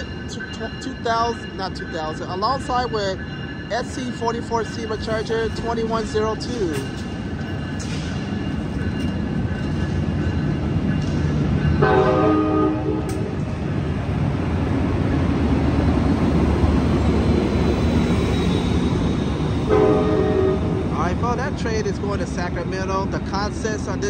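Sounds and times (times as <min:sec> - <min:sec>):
diesel locomotive rumbling past: 0:00.0 - 0:24.0
train horn: 0:11.8 - 0:13.3, 0:19.7 - 0:20.8.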